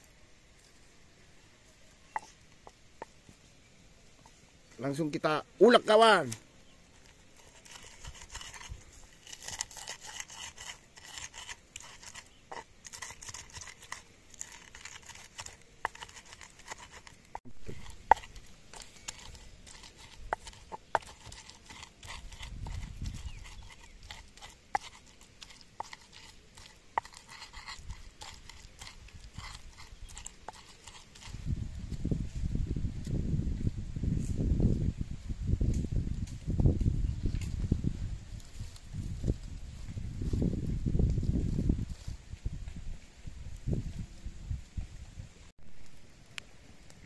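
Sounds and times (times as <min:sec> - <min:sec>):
pestle grinding in wooden mortar: 0:01.9 - 0:03.3, 0:06.6 - 0:32.3.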